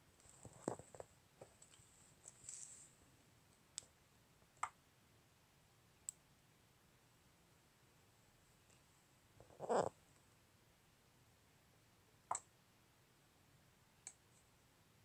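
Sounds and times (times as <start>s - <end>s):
faint clicks and light knocks: 0.2s - 2.7s.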